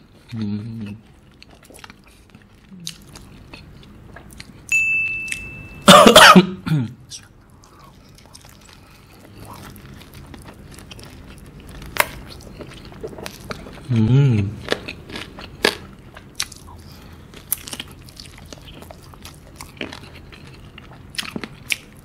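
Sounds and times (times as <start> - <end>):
man coughing hard: 5.8 - 7.0.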